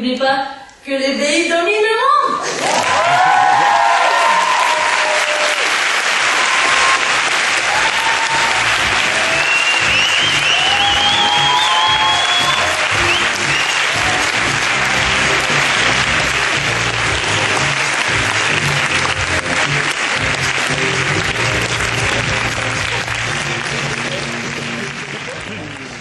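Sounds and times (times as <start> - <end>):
large audience applauding: 2.4 - 26.0
music playing: 6.7 - 26.0.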